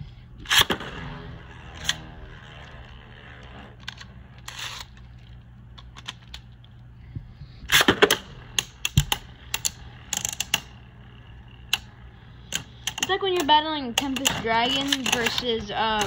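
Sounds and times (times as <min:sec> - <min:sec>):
plastic tops clicking together: 0:12.5 - 0:16.0.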